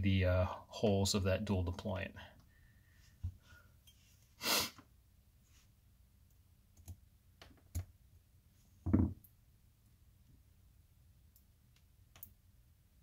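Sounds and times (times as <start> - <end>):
dull thump: 8.8 - 9.2.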